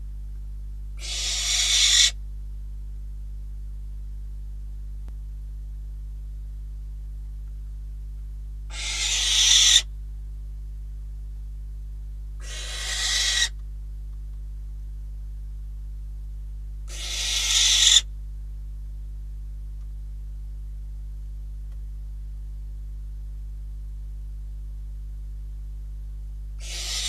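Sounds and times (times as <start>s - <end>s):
owl screeching: 1.0s - 2.2s, 8.7s - 9.9s, 12.4s - 13.6s, 16.9s - 18.1s, 26.6s - 27.0s.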